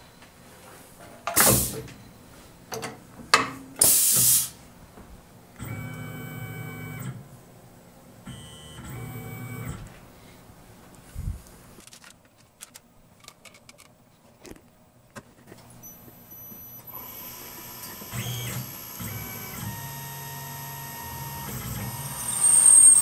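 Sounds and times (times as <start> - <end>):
compressed air hiss: 1.4 - 1.8, 3.8 - 4.6
stepper motors whining: 16.4 - 23.0.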